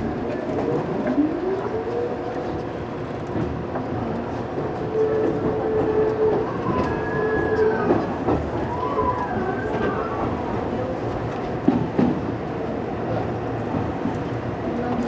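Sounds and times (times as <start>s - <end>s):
wheels rumbling on rails: 0.0s - 15.0s.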